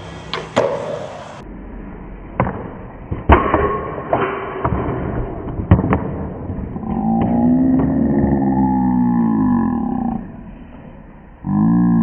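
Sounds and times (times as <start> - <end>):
skateboard rolling on concrete: 0.0 - 1.4.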